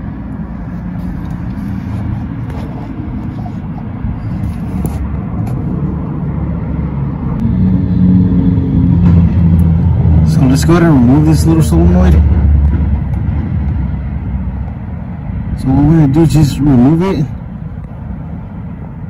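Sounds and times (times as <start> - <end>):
car engine rumbling: 0.0 - 19.0.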